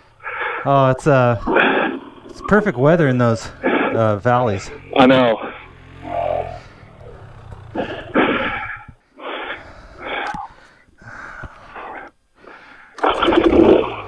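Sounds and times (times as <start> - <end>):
person breathing heavily: 0.0 - 0.7, 6.4 - 13.0.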